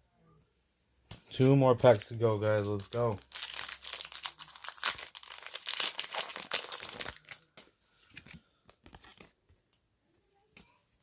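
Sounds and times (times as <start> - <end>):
foil pack crinkling and tearing: 1.8 - 7.6.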